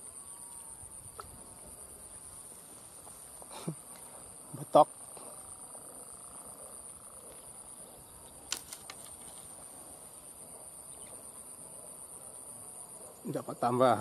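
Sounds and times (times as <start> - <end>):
faint outdoor background noise: 0.0 - 14.0
insects droning: 0.0 - 14.0
faint ticks: 6.4 - 7.6.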